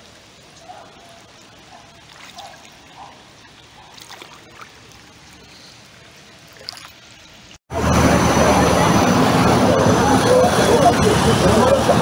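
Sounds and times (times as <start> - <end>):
rain hissing on water: 0.0 - 12.0
sharp splashes: 1.7 - 7.6.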